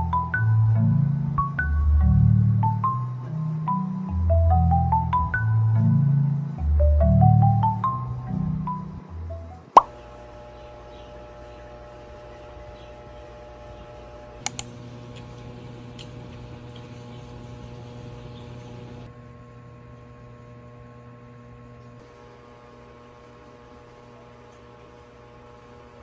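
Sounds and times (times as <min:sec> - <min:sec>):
electrical hum: 0:00.0 - 0:26.0
sharp clicks: 0:14.4 - 0:14.7.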